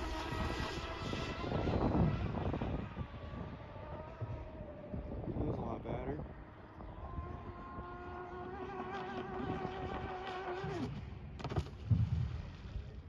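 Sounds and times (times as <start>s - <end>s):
electric boat motor whining: 0.0s - 5.4s, 6.3s - 11.1s.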